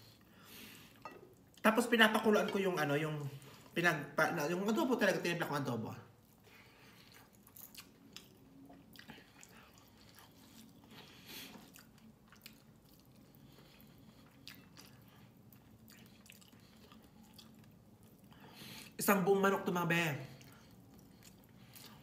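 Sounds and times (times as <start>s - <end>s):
close-up chewing: 6.1s - 19.0s, 20.2s - 22.0s.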